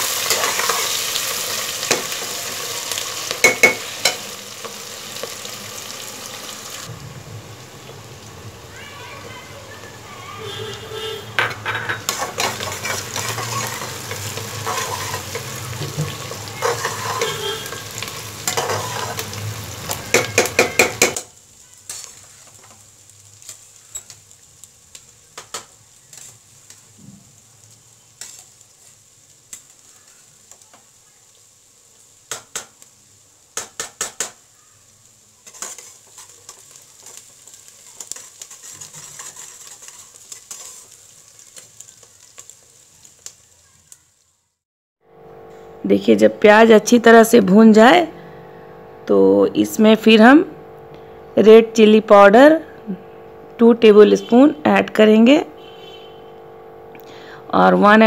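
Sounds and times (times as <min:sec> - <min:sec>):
onions sizzling in oil: 0:00.0 - 0:58.0
steel spatula clinking on pot: 0:03.4 - 0:04.2.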